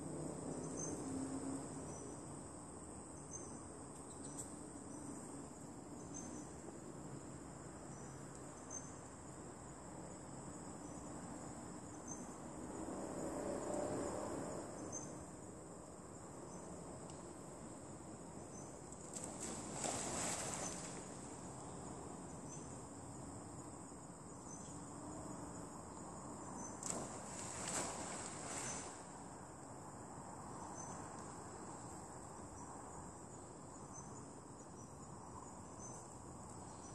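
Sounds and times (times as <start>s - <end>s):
monkey splashing into water: 19.2s - 21.2s, 26.8s - 29.0s.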